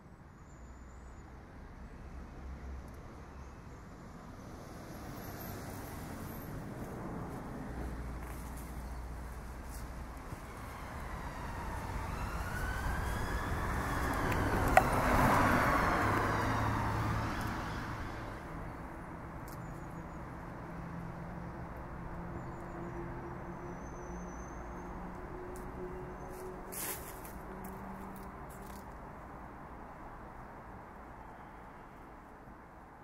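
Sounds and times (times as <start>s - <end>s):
emergency siren wailing: 10.1s - 18.4s.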